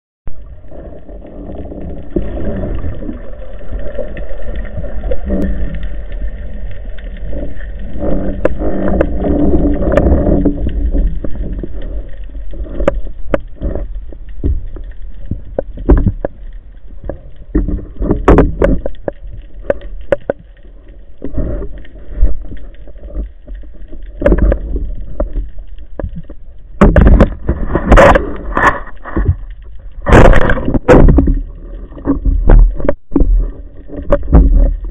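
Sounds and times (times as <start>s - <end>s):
underwater rush of water: 0.3s - 34.9s
sharp clicks and knocks: 8.0s - 34.9s.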